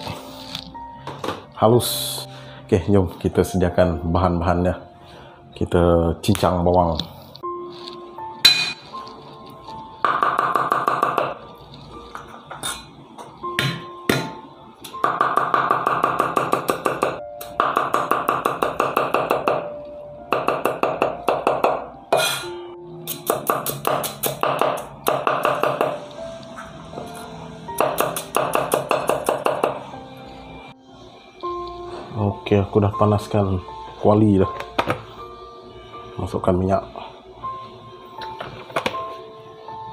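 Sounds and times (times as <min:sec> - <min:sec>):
background music: 0:00.0 - 0:39.9
cleaver chopping on wooden block: 0:23.1 - 0:26.0, 0:27.8 - 0:29.8.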